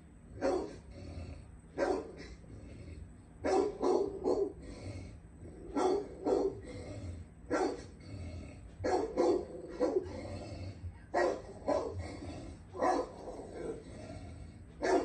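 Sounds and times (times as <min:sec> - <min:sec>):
dog barking: 0:00.4 - 0:00.8, 0:01.8 - 0:02.3, 0:03.4 - 0:04.6, 0:05.7 - 0:06.6, 0:07.5 - 0:07.9, 0:08.8 - 0:10.2, 0:11.1 - 0:12.1, 0:12.8 - 0:13.8, 0:14.8 - 0:15.0.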